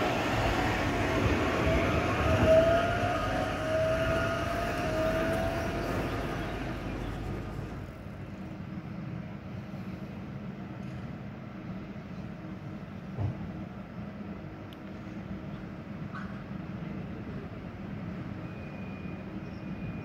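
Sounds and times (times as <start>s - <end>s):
tram motors whining: 0.0s - 8.7s
street background: 0.0s - 20.0s.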